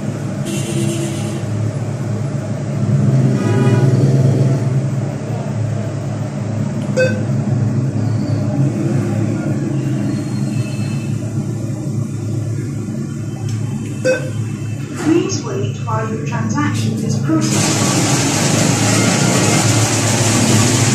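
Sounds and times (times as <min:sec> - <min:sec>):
background traffic rumble: 0:00.0 - 0:20.9
short electronic beep: 0:07.0 - 0:07.2, 0:14.0 - 0:14.4.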